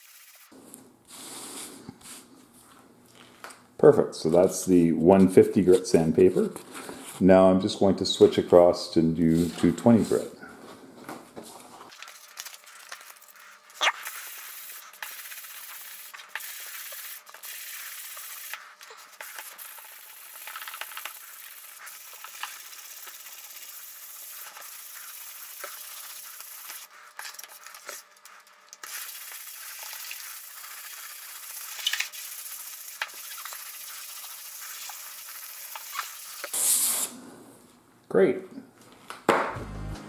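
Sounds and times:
sandpaper scratching wood: 0:00.0 - 0:00.5, 0:12.2 - 0:36.7.

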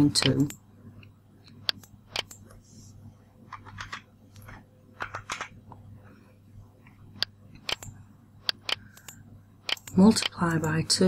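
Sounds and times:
faint steady hum: 0:00.0 - 0:11.0
mouse and keyboard clicks: 0:00.1 - 0:00.6, 0:01.5 - 0:02.6, 0:07.2 - 0:10.8.

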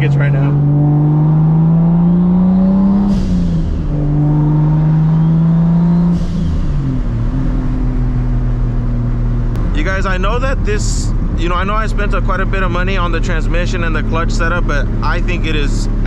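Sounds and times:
car engine accelerating through gears: 0:00.0 - 0:16.0.

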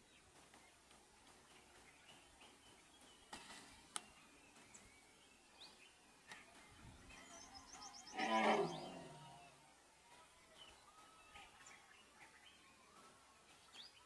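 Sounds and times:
elephant calling: 0:08.1 - 0:09.5.

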